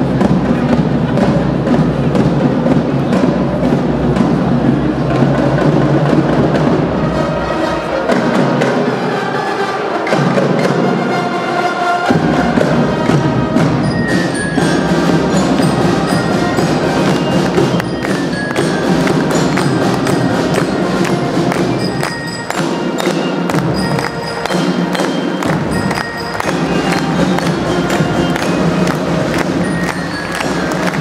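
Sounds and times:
marching drum beat: 0:00.0 - 0:07.3, 0:12.1 - 0:31.0
bell lyre melody: 0:13.8 - 0:31.0.

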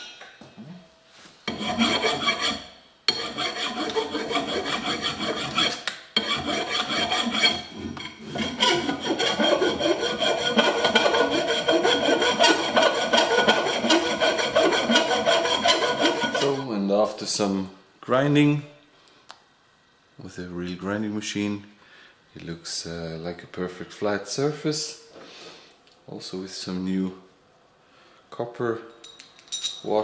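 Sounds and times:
file rasping on metal: 0:01.5 - 0:16.7.

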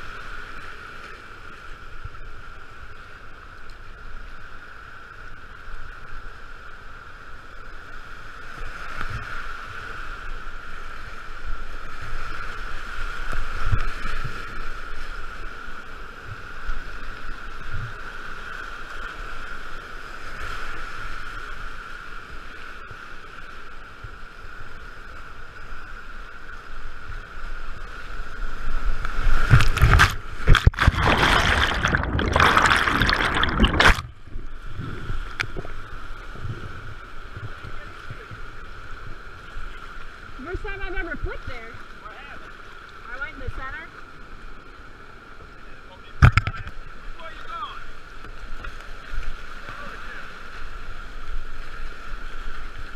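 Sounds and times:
choppy splashing and crashing water: 0:28.3 - 0:39.7
whitewater rushing: 0:29.2 - 0:34.2.

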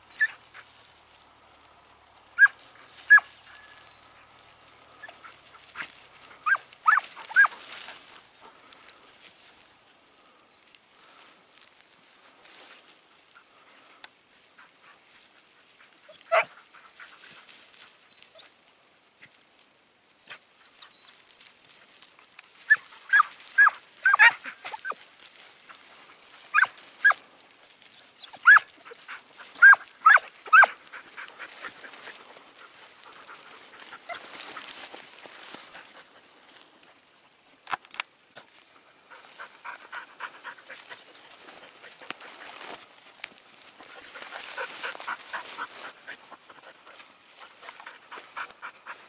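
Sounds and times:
dogs rustling through stubble: 0:00.0 - 0:49.0
hounds yelping: 0:00.1 - 0:00.8, 0:02.3 - 0:08.8, 0:14.6 - 0:18.6, 0:22.6 - 0:36.6, 0:39.0 - 0:42.8, 0:43.6 - 0:49.0.

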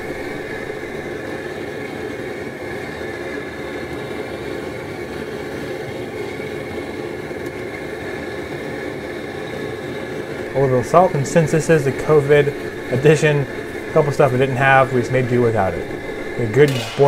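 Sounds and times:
gas burner rushing: 0:00.0 - 0:17.0.

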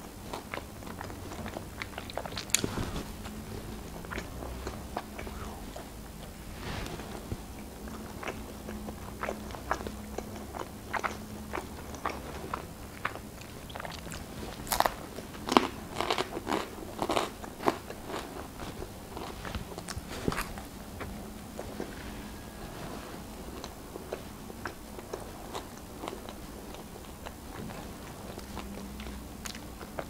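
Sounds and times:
chewing pizza: 0:00.0 - 0:30.0
crust crunching: 0:13.1 - 0:20.7.

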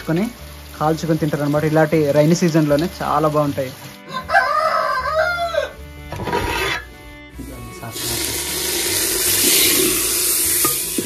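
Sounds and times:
hot oil sizzling in curry: 0:00.0 - 0:11.0
rooster crowing: 0:04.1 - 0:05.8.

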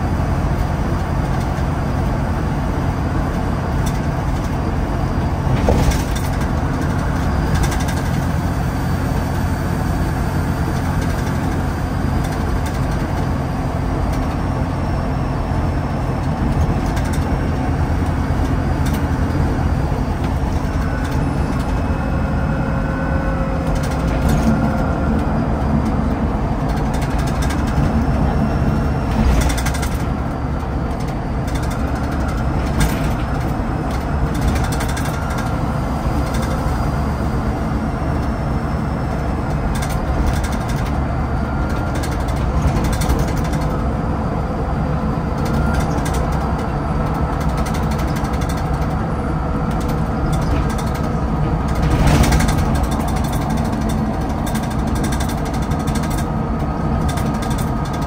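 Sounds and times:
bus engine drone: 0:00.0 - 0:58.0
road noise: 0:00.0 - 0:58.0
knocks from bus body: 0:05.5 - 0:08.1.

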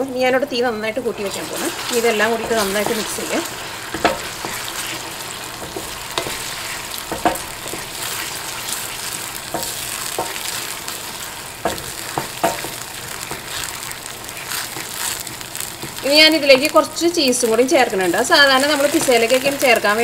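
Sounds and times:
sauce sizzling in a frying pan: 0:00.0 - 0:20.0
spoon scraping and knocking a pan: 0:01.2 - 0:16.3.

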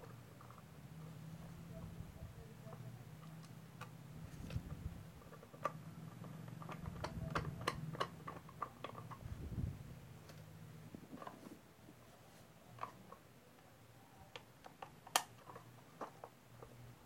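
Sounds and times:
steady low hum: 0:00.0 - 0:14.6
plastic faceplate clicks and taps: 0:14.3 - 0:16.8.

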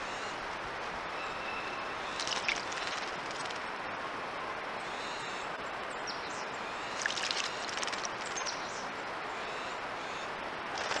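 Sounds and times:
steady outdoor hiss: 0:00.0 - 0:11.0
bird splashing in water: 0:02.1 - 0:03.6, 0:06.9 - 0:08.6, 0:10.7 - 0:11.0.

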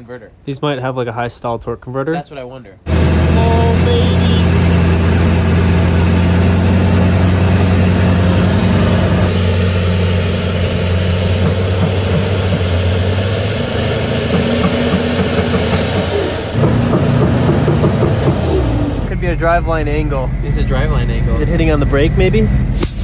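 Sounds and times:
turbo whistle: 0:02.9 - 0:21.0
diesel engines droning under load: 0:02.9 - 0:23.0.

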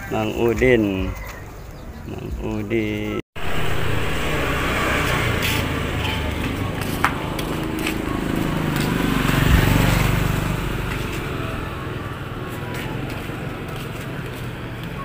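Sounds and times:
motorcycle passing by: 0:03.4 - 0:15.0.

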